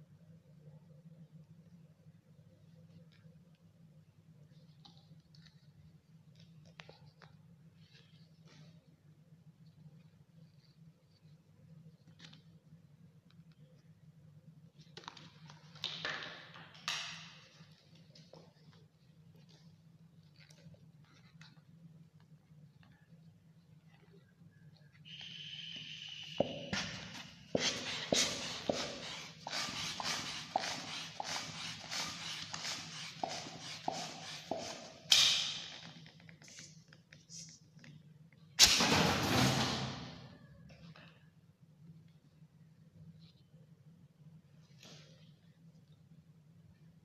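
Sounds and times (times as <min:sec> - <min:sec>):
balloon pump hissing strokes: 0:25.1 - 0:35.6.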